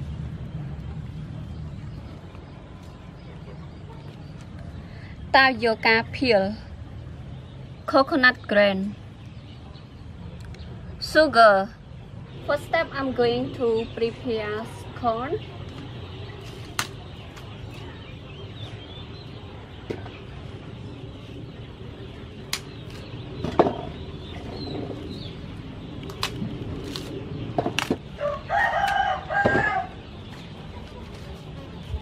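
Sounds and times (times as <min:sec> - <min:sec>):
corn husking snaps and rustling: 0:16.4 - 0:17.5, 0:22.5 - 0:23.1, 0:26.0 - 0:28.1
rooster crowing: 0:28.2 - 0:30.0.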